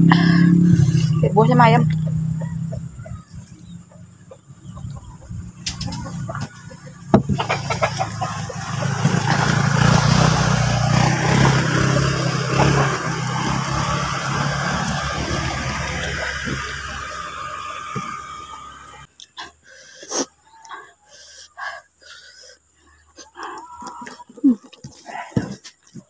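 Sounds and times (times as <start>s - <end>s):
motor engine running: 0.0s - 19.1s.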